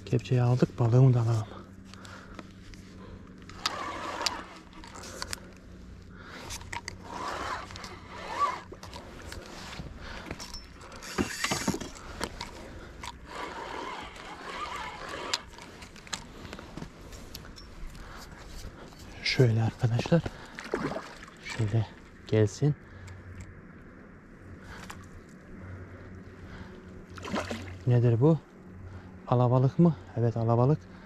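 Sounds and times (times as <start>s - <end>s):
handling scrapes and clicks: 1.3s - 5.7s, 6.3s - 19.3s
water splash: 27.2s - 27.8s.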